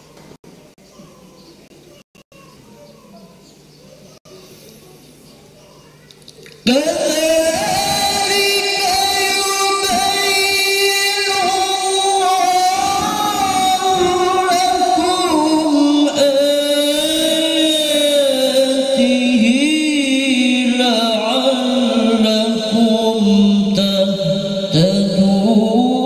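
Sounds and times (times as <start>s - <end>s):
man reciting melodically: 6.6s - 26.0s.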